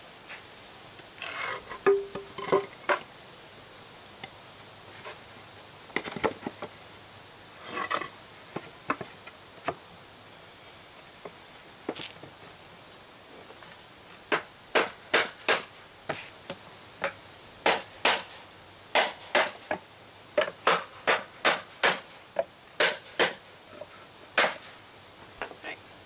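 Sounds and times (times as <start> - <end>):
hammer striking wooden block: 14.3 - 15.7, 17.6 - 18.2, 19.0 - 19.8, 20.4 - 22.0, 22.8 - 23.4, 24.4 - 24.6.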